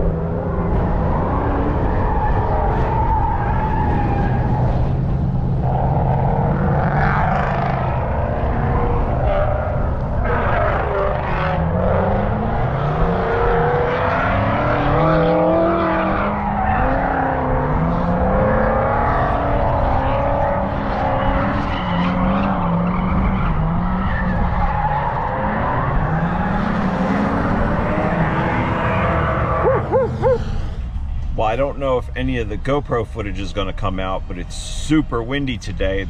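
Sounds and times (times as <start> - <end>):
car engines revving: 0.0 - 36.0
tyres squealing and skidding: 1.0 - 5.0, 13.6 - 30.9.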